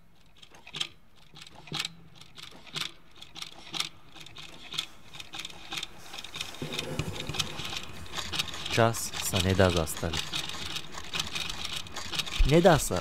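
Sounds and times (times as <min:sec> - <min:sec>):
wall clock ticking: 0:00.3 - 0:13.0.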